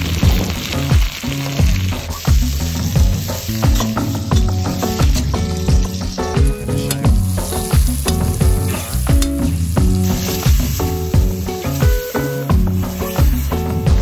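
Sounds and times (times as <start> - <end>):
background music with steady beat: 0.0 - 14.0
vegetables sizzling in hot oil: 0.0 - 14.0.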